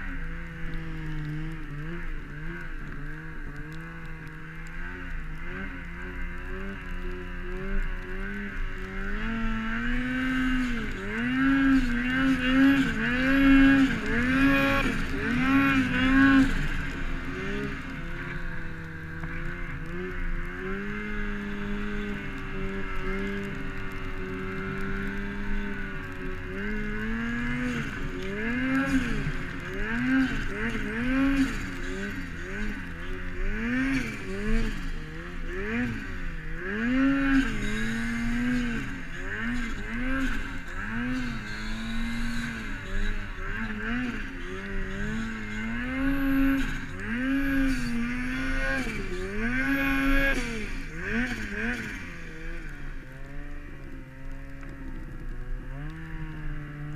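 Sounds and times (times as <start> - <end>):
snowmobile engine revving: 0.0 - 56.9.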